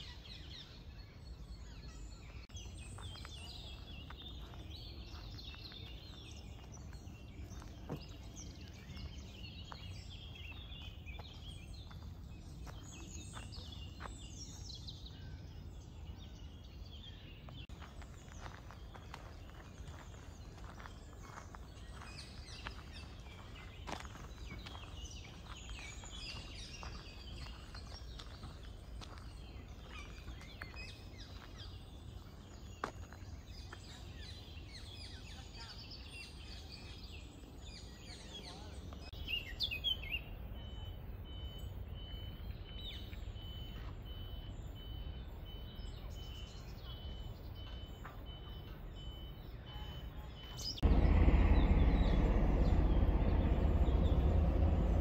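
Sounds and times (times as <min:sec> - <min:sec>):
songbirds chirping: 0:00.0 - 0:55.0
loud steady rushing noise: 0:50.8 - 0:55.0.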